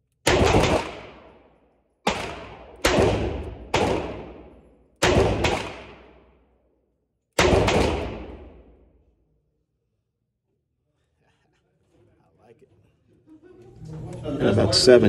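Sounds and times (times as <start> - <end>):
revolver shots reverberating indoors: 0.1 - 9.7.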